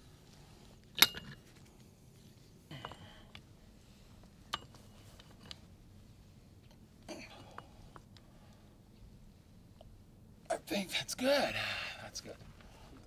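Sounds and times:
pipe wrench clinking on steel pipe: 1.0s - 1.4s.

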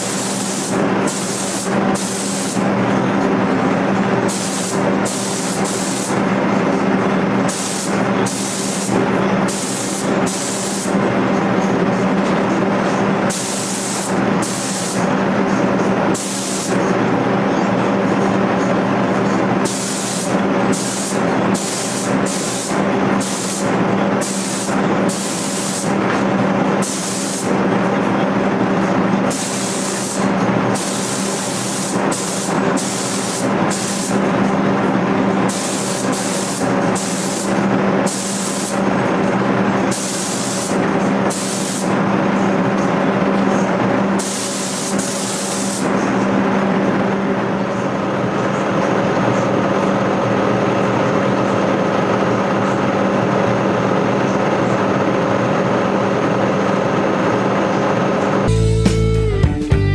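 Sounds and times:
spray gun hissing bursts: 0.0s - 2.7s, 4.2s - 6.3s, 7.4s - 11.0s, 13.3s - 15.1s, 16.1s - 16.9s, 19.6s - 26.0s, 26.8s - 27.6s, 29.3s - 34.4s, 35.4s - 39.0s, 39.8s - 42.0s, 44.2s - 46.0s.

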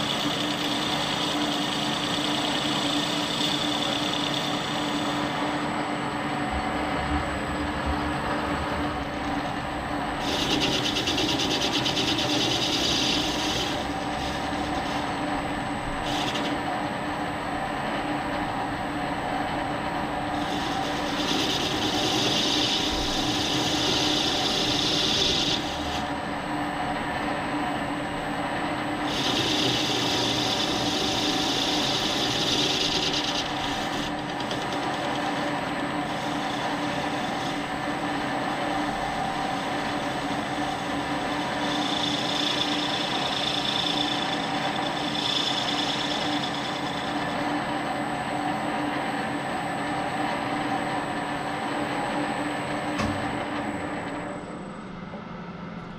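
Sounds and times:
cutting tool scraping hiss: 0.0s - 5.7s, 10.2s - 15.2s, 16.0s - 16.6s, 20.3s - 26.1s, 29.0s - 39.0s, 39.6s - 47.4s
metal lathe motor and gear whine: 0.0s - 55.9s.

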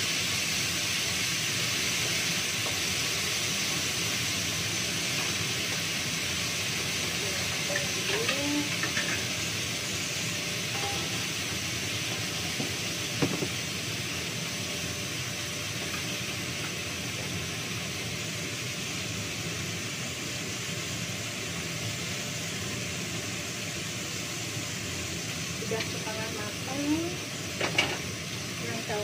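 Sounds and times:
fish frying in hot oil: 0.0s - 29.0s
utensil knock: 12.6s - 13.6s.

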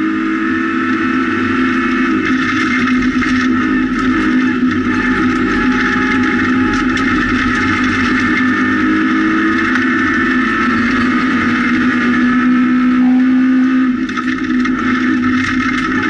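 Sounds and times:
car engine at high revs: 0.0s - 16.0s
gravel stones hitting car: 2.2s - 8.4s.

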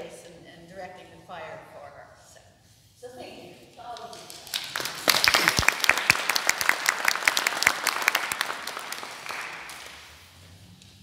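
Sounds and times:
audience applauding: 4.0s - 10.4s.

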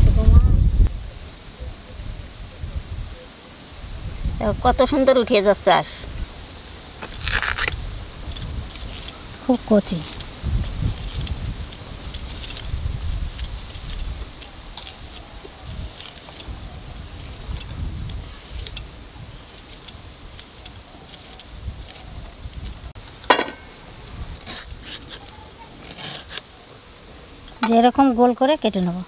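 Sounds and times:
blade cutting and scraping bamboo: 7.0s - 23.2s, 24.1s - 26.5s.

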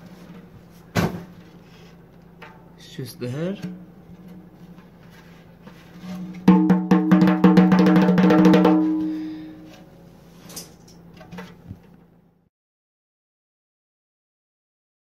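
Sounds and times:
fingers tapping drum head: 6.4s - 9.2s.

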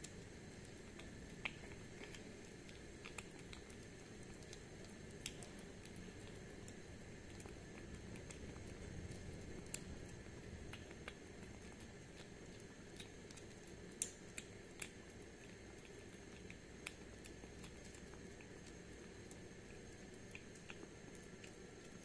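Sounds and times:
kitten chewing wet food: 0.0s - 22.0s.

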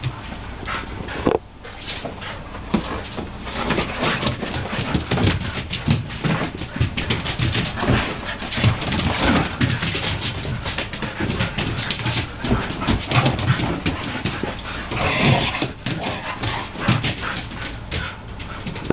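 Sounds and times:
dogs scuffling: 0.0s - 18.9s
dogs vocalizing: 3.4s - 18.9s.

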